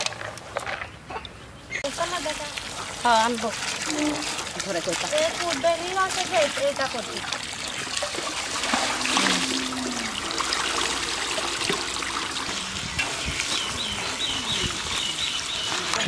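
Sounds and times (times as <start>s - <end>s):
hands stirring vegetables in water: 1.8s - 16.0s
water pouring from hose: 1.9s - 16.0s.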